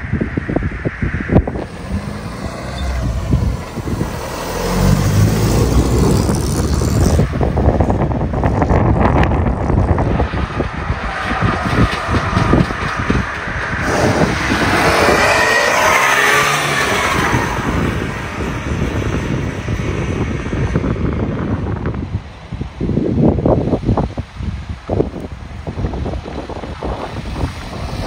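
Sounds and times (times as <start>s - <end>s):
car engines running: 0.1s - 22.0s.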